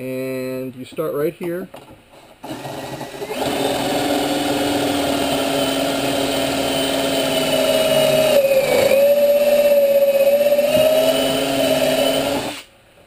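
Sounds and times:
cordless drill whining into plywood: 2.4s - 12.7s.

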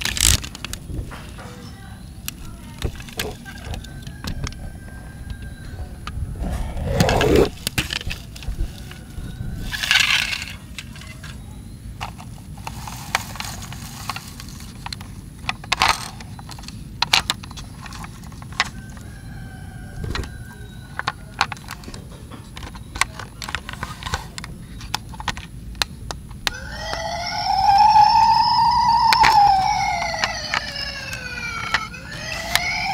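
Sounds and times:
plastic toy clicks and knocks: 0.0s - 1.4s, 2.2s - 4.6s, 9.6s - 11.4s, 12.0s - 19.1s, 20.2s - 27.1s, 29.0s - 32.9s
steady low rumble: 2.1s - 9.8s.

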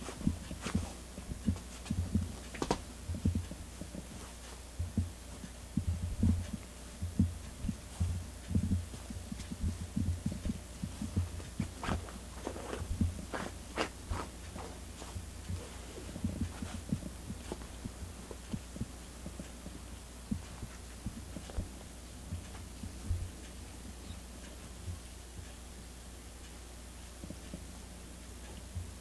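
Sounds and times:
cat paws thumping fabric bed: 0.0s - 4.6s, 7.6s - 21.8s
scratching on fabric: 0.0s - 23.3s.

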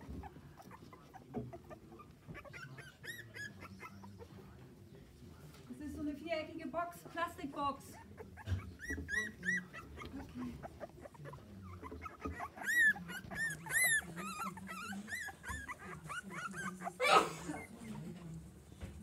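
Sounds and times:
puppies whimpering and yipping: 0.0s - 4.3s, 8.0s - 18.0s.

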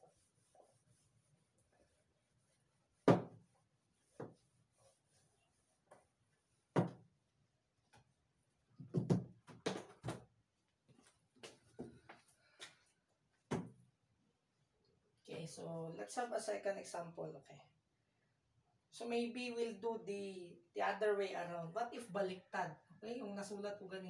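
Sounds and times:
objects knocking on wooden table: 3.1s - 3.4s, 6.8s - 7.0s, 8.8s - 10.2s.

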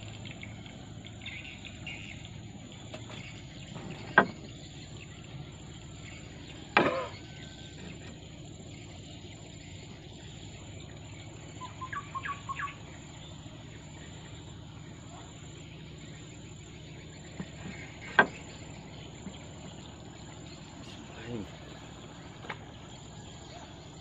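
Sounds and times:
bird chirps: 0.0s - 24.0s
insects buzzing: 0.0s - 24.0s
fishing tackle knocking on boat: 2.9s - 4.6s.

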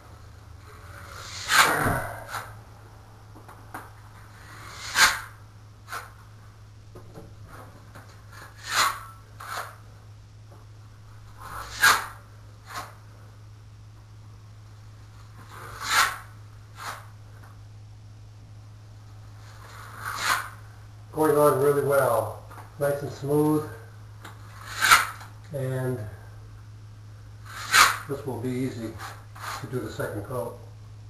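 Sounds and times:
taping knife scraping joint compound: 1.0s - 2.5s, 4.4s - 6.1s, 8.3s - 9.8s, 11.4s - 13.0s, 15.5s - 17.1s, 19.6s - 20.6s, 24.2s - 25.3s, 27.5s - 28.2s.

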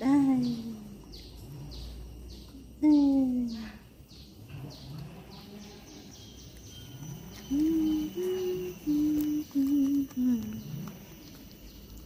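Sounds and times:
faint bird chirps: 0.0s - 12.0s
person humming: 7.4s - 10.7s.

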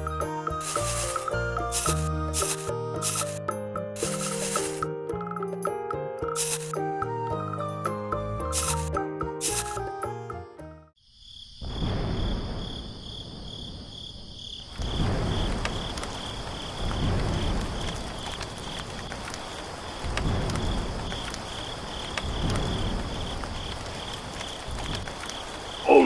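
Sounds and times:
rushing rainstorm: 0.0s - 3.4s, 11.6s - 26.0s
crickets chirping: 11.0s - 26.0s.

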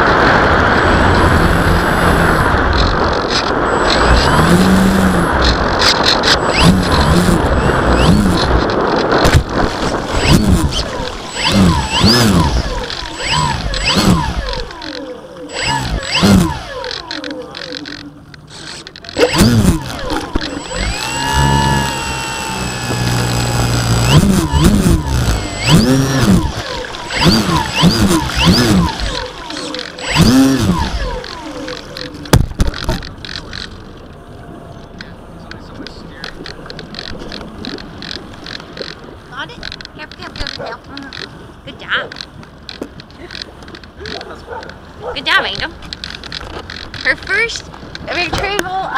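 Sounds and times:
model plane motor revving: 0.8s - 33.7s
lake water sloshing: 2.4s - 48.9s.

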